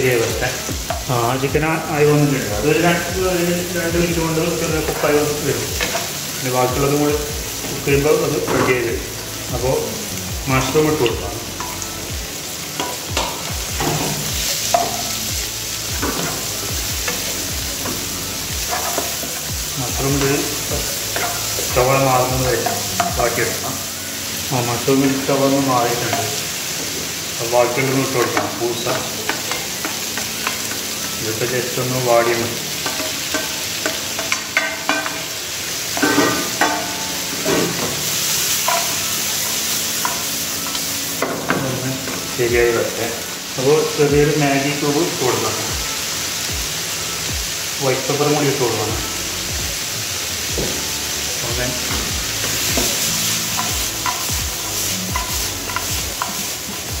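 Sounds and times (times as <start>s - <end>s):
food sizzling in frying pan: 0.0s - 57.0s
spatula scraping pan: 17.1s - 23.8s.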